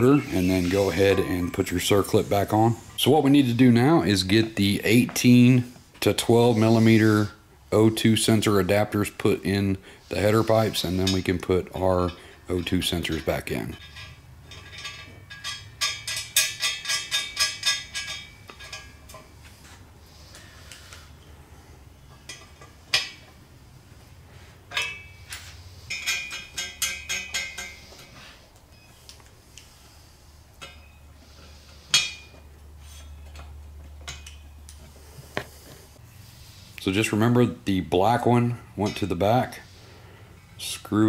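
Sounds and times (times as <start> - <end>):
ratchet clinking on metal pipe: 10.7 - 19.3, 24.7 - 28.1, 31.9 - 34.7.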